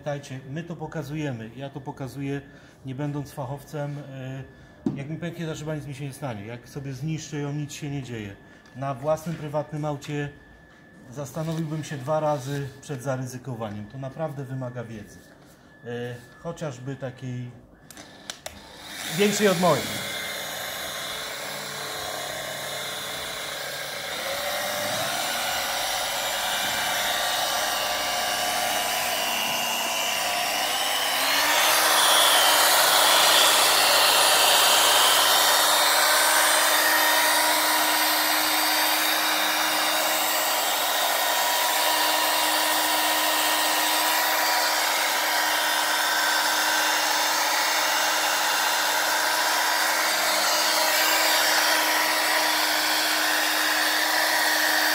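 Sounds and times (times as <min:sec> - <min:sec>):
electric polishing machine whine: 0:08.6 - 0:12.8, 0:17.8 - 0:54.9.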